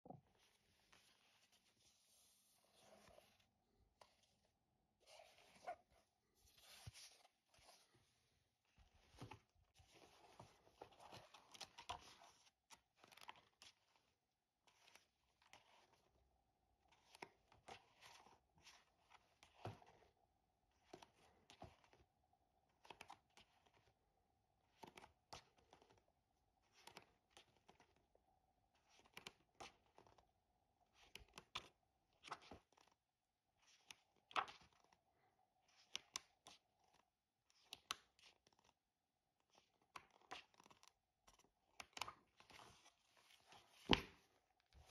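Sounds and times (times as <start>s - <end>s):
book pages turning: 0.3s - 4.4s, 5.0s - 14.1s, 14.7s - 16.1s, 16.9s - 20.1s, 24.8s - 26.0s, 31.0s - 33.0s, 33.6s - 34.9s, 37.6s - 38.7s, 39.5s - 44.9s.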